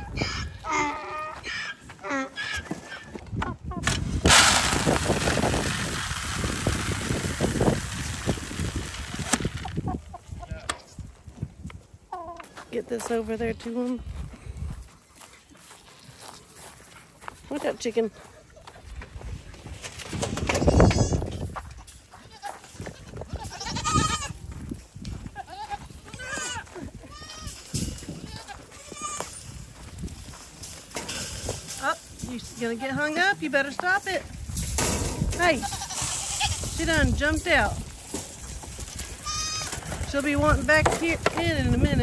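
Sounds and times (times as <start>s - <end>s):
goats bleating: 22.2s - 24.4s, 25.4s - 29.4s, 35.4s - 36.7s, 39.1s - 40.0s.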